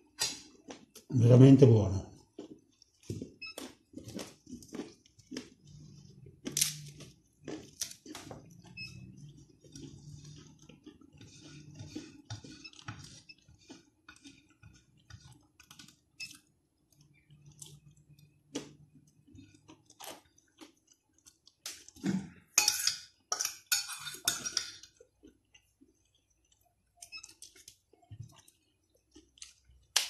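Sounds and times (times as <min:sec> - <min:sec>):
chewing: 0:02.2 - 0:22.4, 0:24.0 - 0:30.0
fork scraping plate: 0:08.4 - 0:14.9, 0:22.6 - 0:24.8
bread rubbing on plate: 0:09.5 - 0:15.0.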